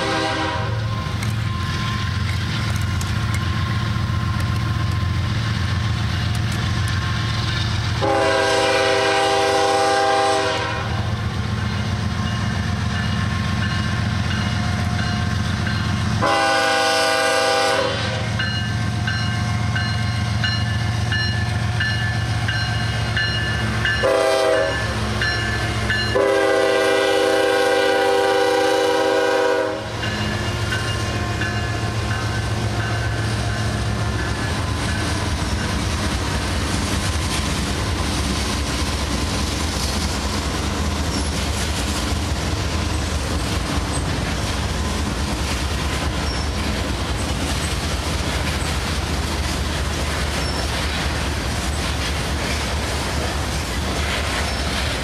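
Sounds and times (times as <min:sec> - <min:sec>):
locomotive air horn blasts: 0:00.0 - 0:00.9, 0:08.0 - 0:11.1, 0:16.2 - 0:18.4, 0:24.0 - 0:25.0, 0:26.0 - 0:30.0
diesel locomotive rumble: 0:00.0 - 0:55.0
freight cars rumbling on rails: 0:00.0 - 0:55.0.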